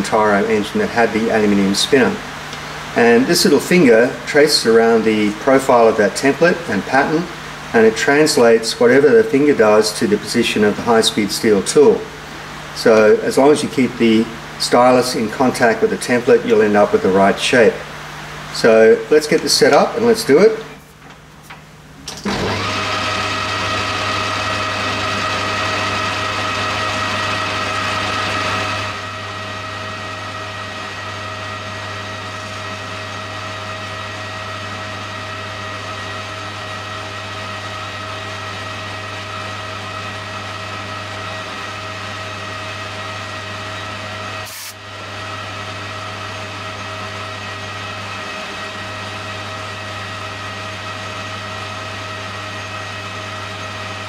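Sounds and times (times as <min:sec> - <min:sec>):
lathe humming and whining: 0:00.0 - 0:21.0, 0:22.0 - 0:54.0
tool cutting aluminium: 0:44.4 - 0:44.8.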